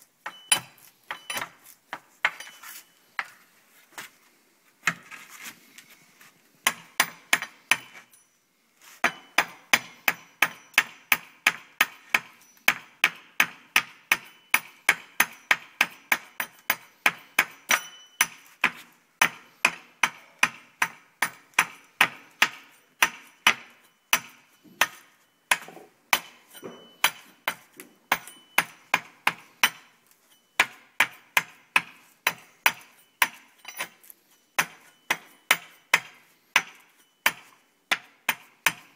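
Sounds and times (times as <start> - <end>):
hatchet chopping bamboo: 6.7 - 8.0, 9.0 - 26.4, 27.0 - 29.9, 30.6 - 34.0, 34.6 - 38.9.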